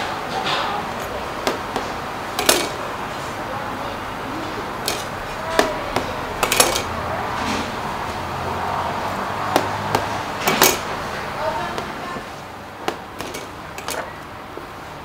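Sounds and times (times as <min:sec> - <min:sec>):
metal tools clacking on steel: 0:02.4 - 0:02.9, 0:04.8 - 0:07.0, 0:09.6 - 0:11.0, 0:12.9 - 0:14.2.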